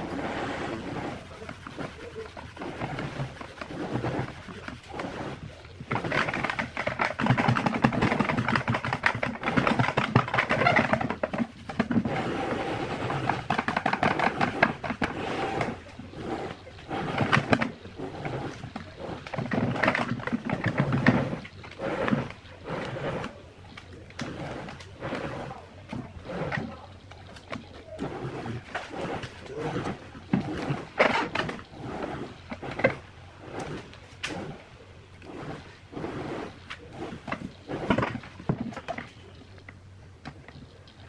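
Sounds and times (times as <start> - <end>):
cloth rubbing over film: 0.0 - 27.0.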